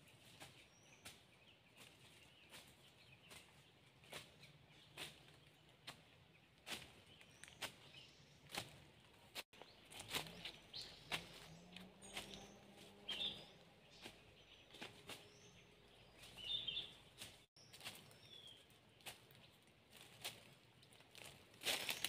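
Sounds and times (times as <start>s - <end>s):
footsteps on dry leaves: 0.0s - 22.0s
bird chirps: 9.6s - 18.7s.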